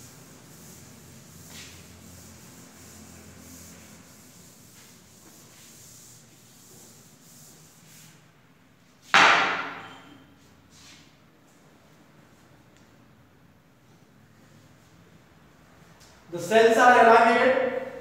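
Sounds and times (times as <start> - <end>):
duster scrubbing a chalkboard: 0.0 - 8.2
sudden loud thump: 9.2 - 9.8.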